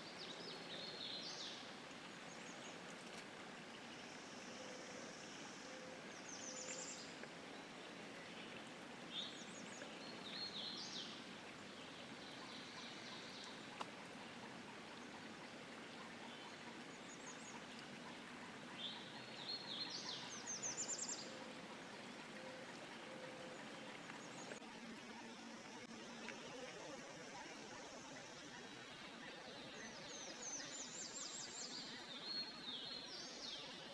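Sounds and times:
faint steady hiss: 0.0 - 33.9
songbird chirping and trilling: 15.0 - 33.9.

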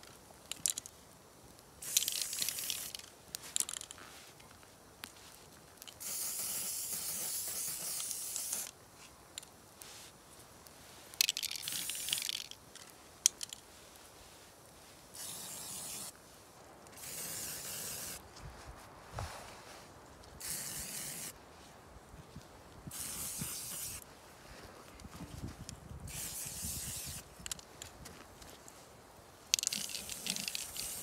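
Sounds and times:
spray paint can hissing: 1.8 - 3.1, 6.0 - 8.8, 11.3 - 12.5, 15.2 - 16.2, 17.0 - 18.2, 20.4 - 21.4, 22.9 - 24.0, 26.1 - 27.3, 29.6 - 31.0.

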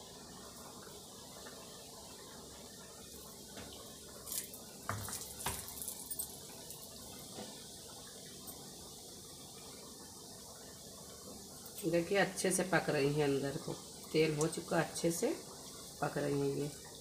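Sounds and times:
dough frying in oil: 0.0 - 17.0
oil crackling and popping: 3.2 - 8.7.

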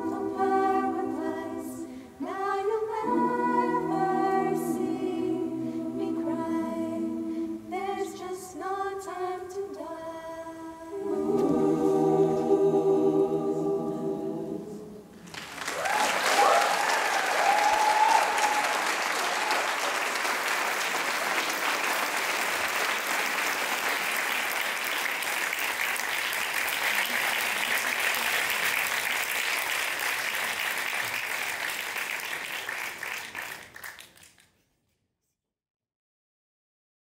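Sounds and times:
audience applauding: 15.2 - 34.4.

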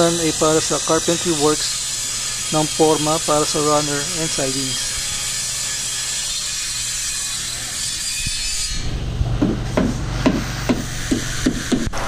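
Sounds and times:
power saw cutting plywood: 0.0 - 12.0
sharp knocks and taps: 9.4 - 11.9.

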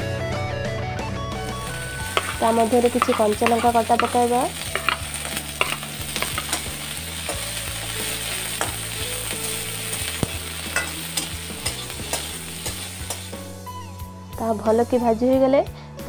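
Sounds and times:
vegetables sizzling in hot oil: 1.4 - 15.3
wooden spatula scraping pan: 2.1 - 6.7.

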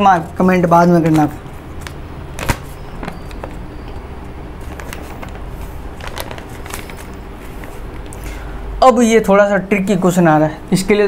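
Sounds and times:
low room hum: 0.0 - 11.0
handling rustling: 0.9 - 8.2.

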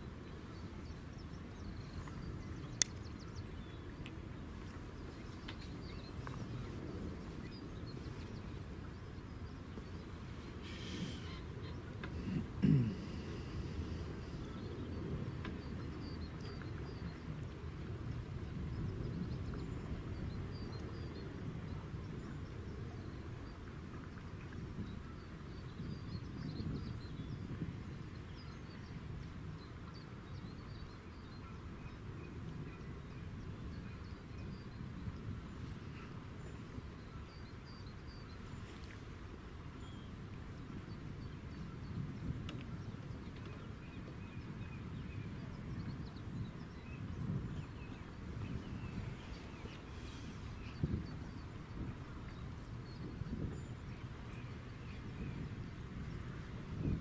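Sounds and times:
wind rumbling on microphone: 0.0 - 57.0
faint bird chirps: 9.4 - 15.2.

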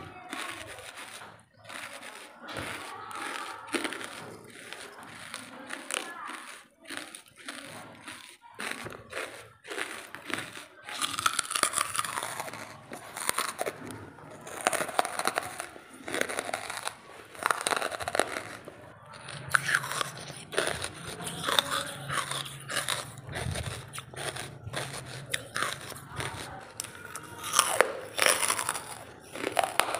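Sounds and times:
chewing crunchy charcoal: 0.0 - 29.9.

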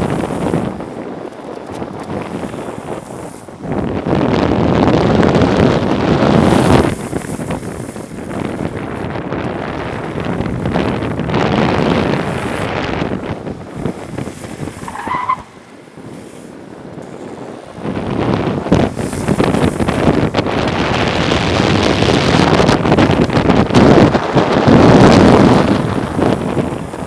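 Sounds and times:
longboard wheels on asphalt: 0.0 - 27.0
rushing wind: 0.0 - 27.0
skateboard wheels squealing: 14.5 - 15.8.

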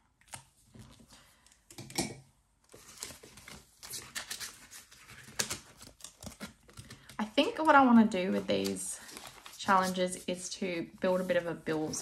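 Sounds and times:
card and plastic sleeve rustling: 2.6 - 12.0.

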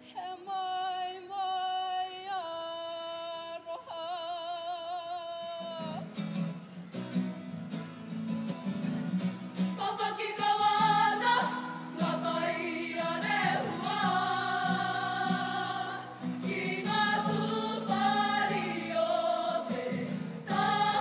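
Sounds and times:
solo singer with vibrato: 0.0 - 6.1, 9.8 - 21.0
strummed acoustic guitar: 5.4 - 21.0
group singing: 9.6 - 21.0.

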